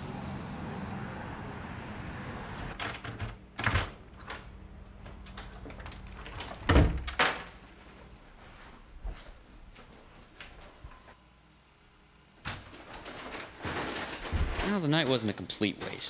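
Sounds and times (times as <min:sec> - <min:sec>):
door shutting with knocks: 0:02.8 - 0:04.4, 0:06.6 - 0:07.5.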